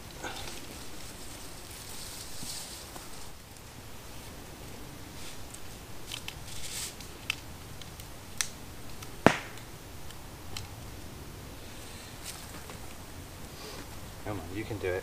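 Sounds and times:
rustling and handling noises: 0:00.0 - 0:08.1, 0:11.7 - 0:14.0
short sharp snaps: 0:08.4 - 0:10.2.

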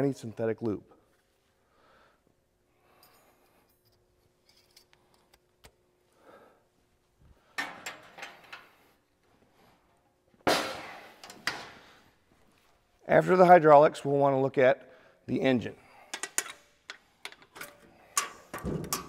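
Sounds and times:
metal door clanking: 0:18.5 - 0:19.0
heavy metal door banging shut: 0:18.6 - 0:19.0.

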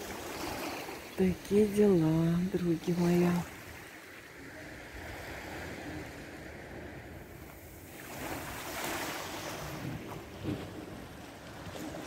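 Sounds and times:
small sea waves washing ashore: 0:00.0 - 0:12.0
wind rumbling on microphone: 0:04.4 - 0:12.0.

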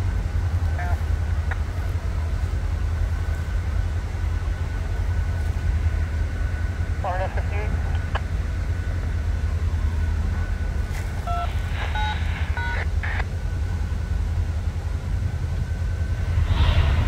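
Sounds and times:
diesel locomotive idling: 0:00.0 - 0:17.0
touch-tone beeps: 0:11.3 - 0:13.2.

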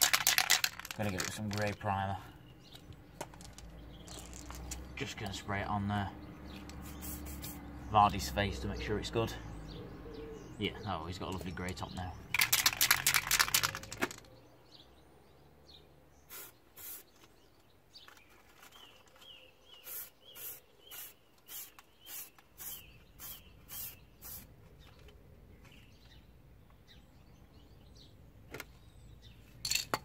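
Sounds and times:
aerosol can spraying: 0:06.7 - 0:07.6, 0:16.3 - 0:17.1, 0:19.8 - 0:24.5.

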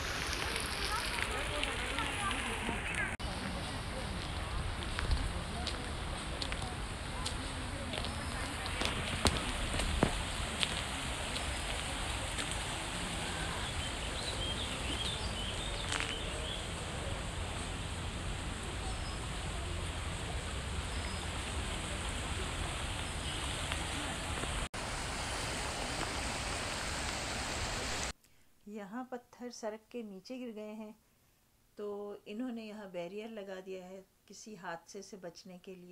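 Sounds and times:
river rushing over stones: 0:00.0 - 0:28.1.

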